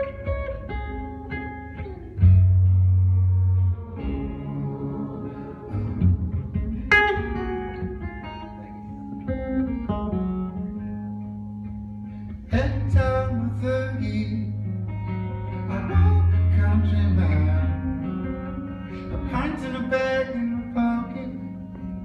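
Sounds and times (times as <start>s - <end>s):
acoustic guitar strumming: 0.0s - 22.0s
deep low held note: 2.4s - 8.1s
man singing: 12.5s - 14.7s, 15.6s - 18.1s, 19.1s - 21.8s.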